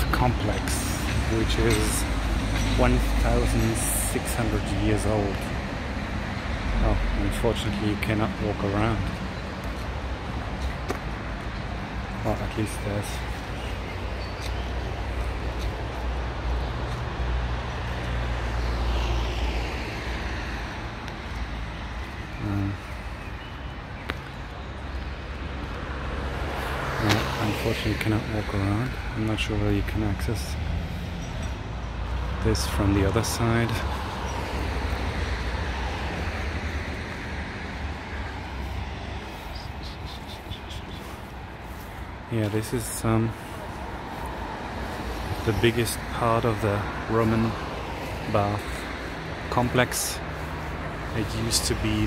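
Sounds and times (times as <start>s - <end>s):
low rumble of traffic: 0.0s - 52.0s
vehicle passing by: 16.3s - 22.8s, 25.6s - 52.0s.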